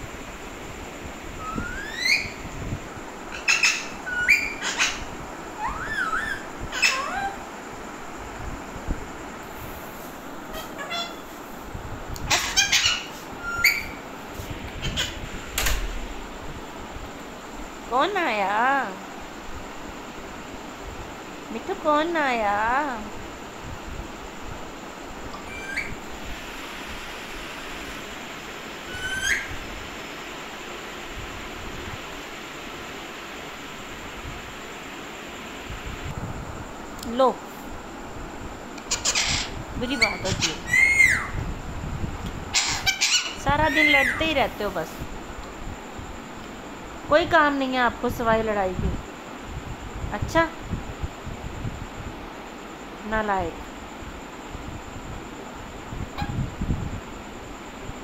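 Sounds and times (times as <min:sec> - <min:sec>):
steady hiss: 0:00.0 - 0:58.0
parakeet squawks: 0:01.4 - 0:02.4, 0:03.3 - 0:07.4, 0:10.5 - 0:11.4, 0:12.3 - 0:14.0, 0:14.8 - 0:15.2, 0:25.4 - 0:26.0, 0:28.9 - 0:29.5, 0:38.9 - 0:41.4, 0:42.5 - 0:44.2
parakeet whistling: 0:01.4 - 0:02.5, 0:03.3 - 0:07.4, 0:10.5 - 0:11.3, 0:12.3 - 0:14.0, 0:25.4 - 0:26.0, 0:28.9 - 0:29.6, 0:38.9 - 0:41.4, 0:42.5 - 0:44.2.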